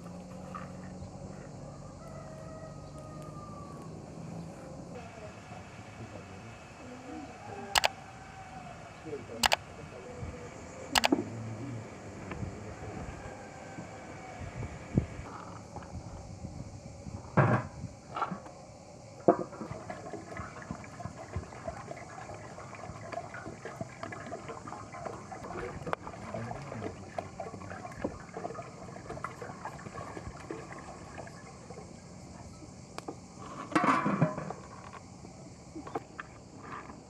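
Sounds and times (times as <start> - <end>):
water pouring into metal pot: 20.0 - 31.5.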